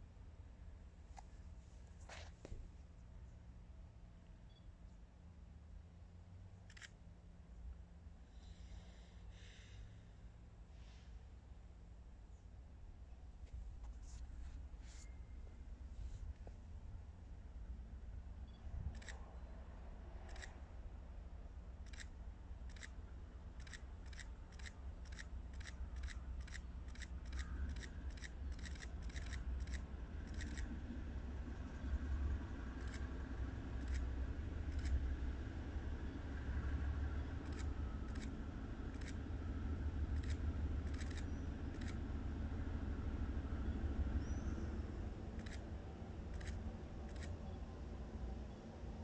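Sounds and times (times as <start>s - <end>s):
faint high whine: 1.2s - 49.0s
freight train rumble: 5.4s - 49.0s
sharp clicks: 20.2s - 20.6s, 21.8s - 23.0s, 23.6s - 30.8s, 32.8s - 33.1s, 33.8s - 34.1s, 34.7s - 35.0s, 37.4s - 39.2s, 40.2s - 42.0s, 45.4s - 45.6s, 46.3s - 47.4s.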